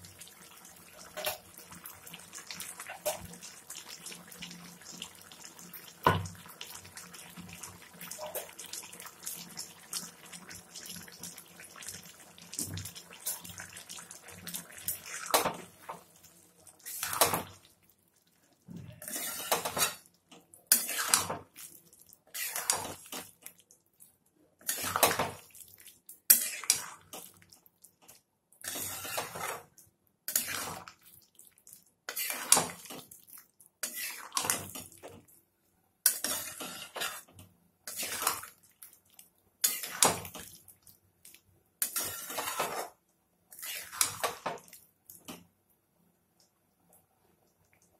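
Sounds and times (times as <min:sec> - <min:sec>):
spatula scraping metal pan: 0:19.0 - 0:20.0, 0:28.6 - 0:29.6, 0:36.1 - 0:37.3, 0:39.6 - 0:40.1, 0:41.8 - 0:42.9.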